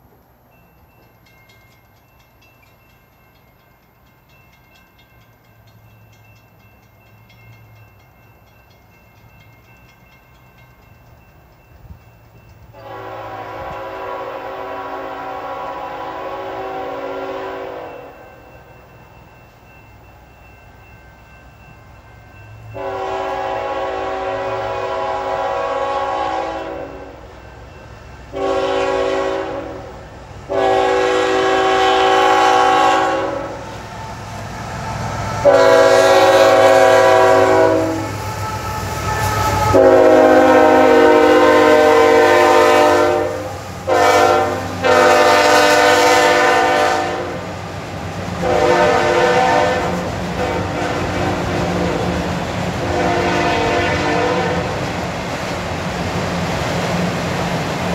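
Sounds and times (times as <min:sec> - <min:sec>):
train wheels clattering on rails: 0:00.0 - 0:14.7, 0:16.0 - 0:57.9
locomotive air horn blasts: 0:12.8 - 0:18.2, 0:22.8 - 0:27.2, 0:28.3 - 0:33.7, 0:35.4 - 0:47.5, 0:48.4 - 0:54.9.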